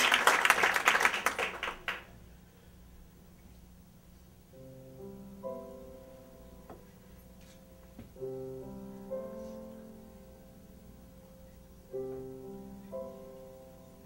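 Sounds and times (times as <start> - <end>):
piano playing slow chords: 4.0 - 14.0.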